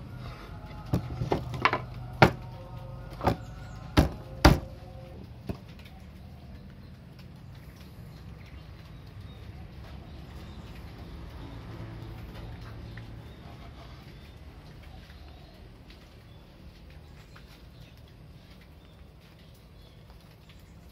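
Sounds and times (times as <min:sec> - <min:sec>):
low steady hum: 0:00.0 - 0:20.9
wooden stand clacking: 0:00.9 - 0:02.4.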